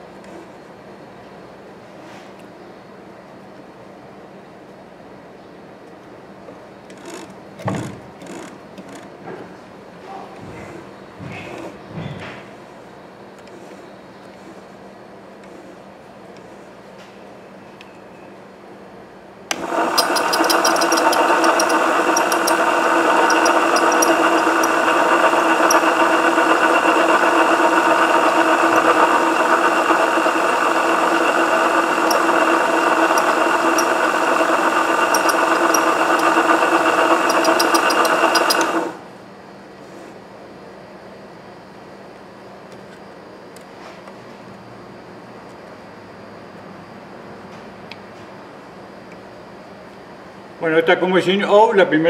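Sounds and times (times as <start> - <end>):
coil-winding machine whining: 19.5 - 39.0.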